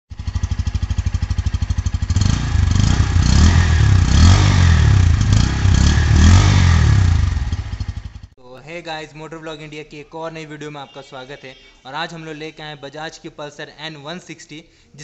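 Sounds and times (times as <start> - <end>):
motorcycle engine idling and revving: 0.1 - 8.4.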